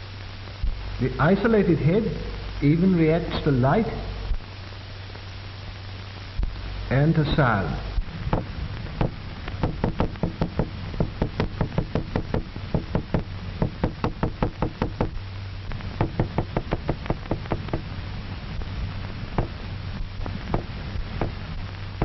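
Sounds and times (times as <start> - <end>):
hammer knocking on tabletop: 16.0 - 17.8.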